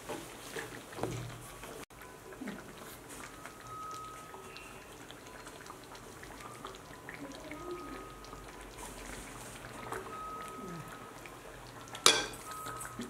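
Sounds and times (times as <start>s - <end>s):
gravy bubbling in a wok: 0.0s - 13.0s.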